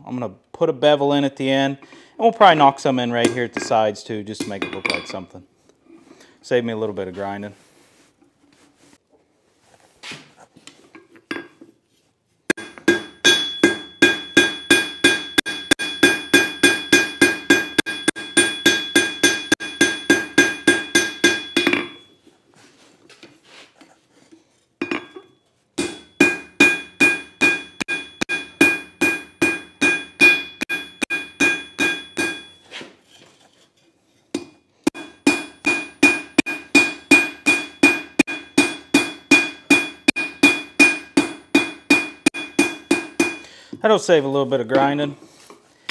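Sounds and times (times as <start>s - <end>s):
hammer striking steel on anvil: 12.5s - 22.2s, 24.8s - 32.6s, 34.3s - 43.5s.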